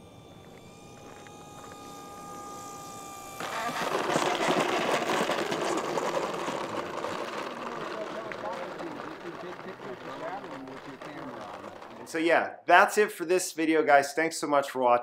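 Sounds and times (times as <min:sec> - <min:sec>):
electric motor whine: 0:00.0 - 0:12.2
wheels rattling on asphalt: 0:03.4 - 0:12.2.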